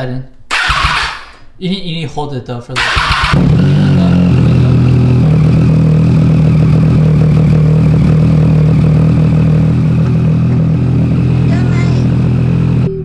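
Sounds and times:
motorcycle engine idling: 2.8s - 13.0s.

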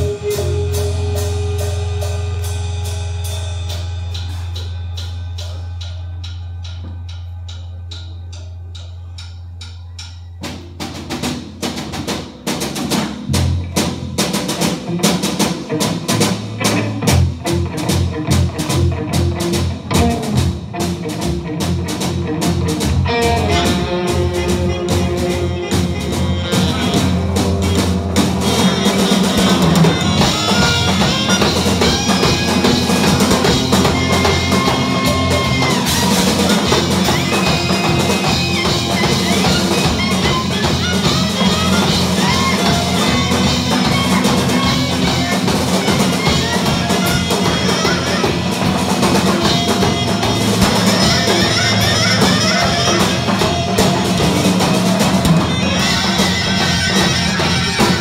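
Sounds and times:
electric guitar: 0.0s - 7.0s, 10.8s - 58.0s
bass: 0.0s - 58.0s
drums and percussion: 0.0s - 58.0s
held saxophone notes: 23.1s - 58.0s.

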